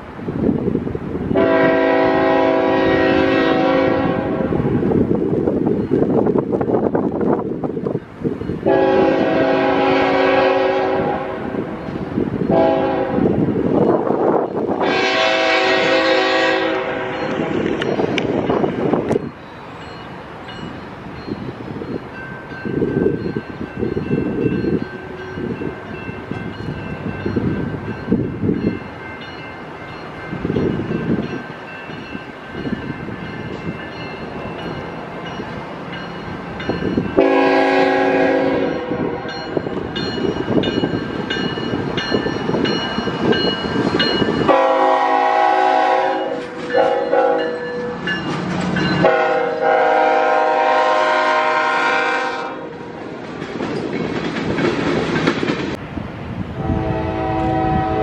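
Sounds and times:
train cars rolling past: 0.0 - 58.0
train engine rumble: 0.0 - 58.0
wind on microphone: 0.0 - 58.0
locomotive air horn blasts: 1.4 - 4.8, 8.6 - 11.8, 12.5 - 13.4, 14.8 - 17.6, 37.2 - 39.3, 44.5 - 48.0, 49.0 - 52.9, 56.6 - 58.0.

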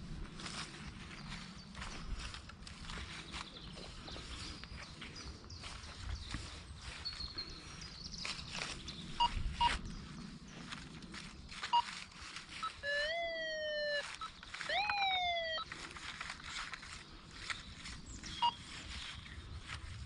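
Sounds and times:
ground and leaf rustle: 0.0 - 20.0
short high beeps: 12.6 - 15.7
metal detector target tones: 12.6 - 15.8.

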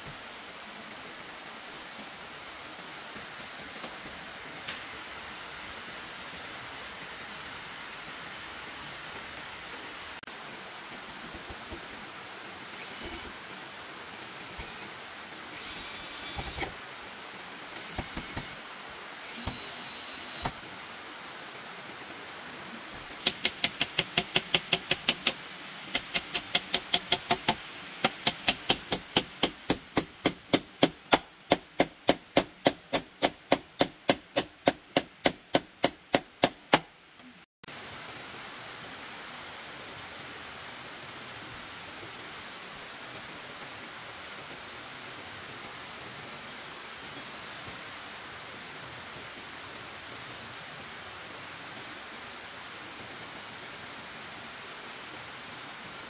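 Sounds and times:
steady hiss: 0.0 - 56.0
sharp knocking: 26.0 - 36.9.

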